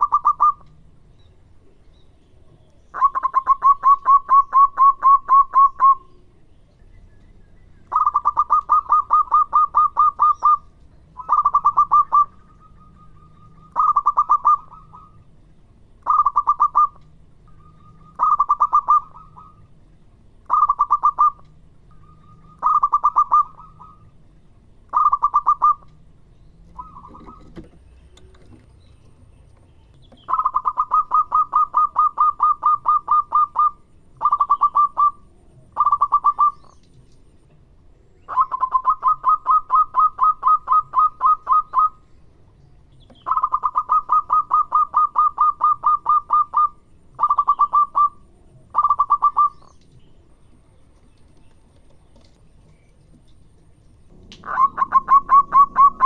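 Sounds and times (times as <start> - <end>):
dove cooing in trilled runs: 7.9 - 10.6, 11.2 - 15.2, 22.5 - 24.0, 26.7 - 28.7, 54.1 - 56.0.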